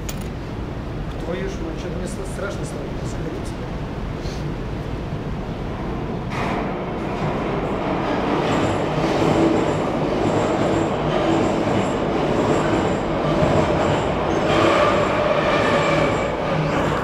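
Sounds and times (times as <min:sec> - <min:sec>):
rumble of train wheels: 0:00.0 - 0:17.0
wheels squealing on rails: 0:07.9 - 0:17.0.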